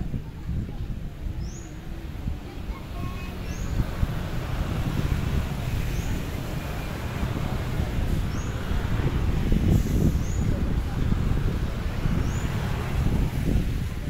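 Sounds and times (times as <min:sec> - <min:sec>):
wind noise: 0:00.0 - 0:14.0.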